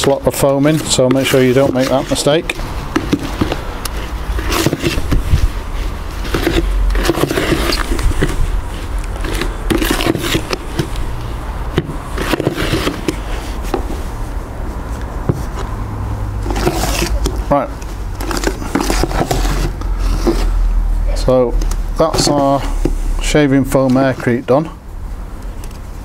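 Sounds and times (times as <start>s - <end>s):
trowel scraping wet mix in bucket: 0.0s - 3.3s, 4.3s - 11.0s, 11.9s - 13.6s, 16.4s - 17.4s, 18.2s - 20.6s.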